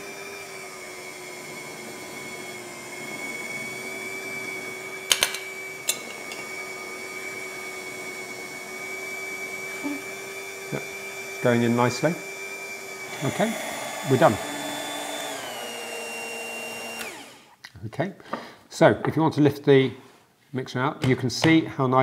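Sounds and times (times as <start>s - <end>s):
electric hand mixer running: 0.0s - 17.6s.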